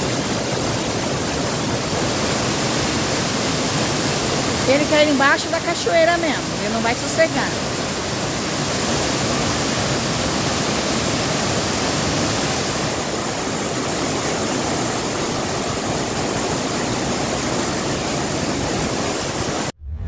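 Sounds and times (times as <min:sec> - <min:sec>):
waterfall rushing: 0:00.0 - 0:19.7.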